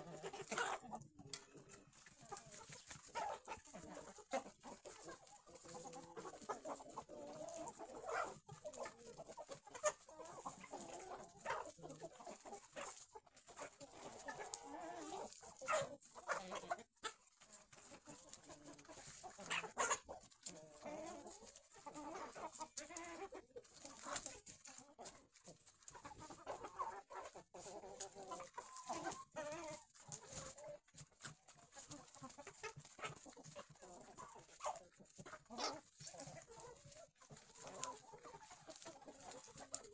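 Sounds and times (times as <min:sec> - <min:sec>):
hens clucking: 0:00.0 - 0:39.9.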